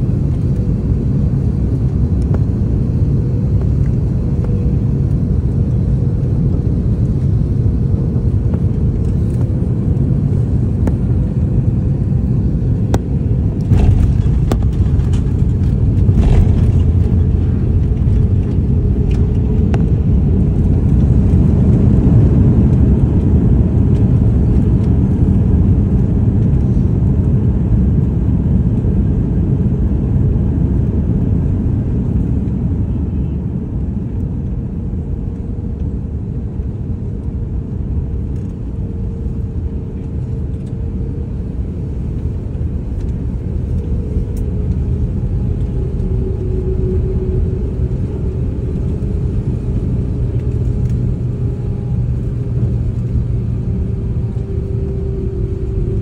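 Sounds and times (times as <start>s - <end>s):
jet engines of airliner: 0.0s - 56.0s
wind buffeting microphone: 0.0s - 56.0s.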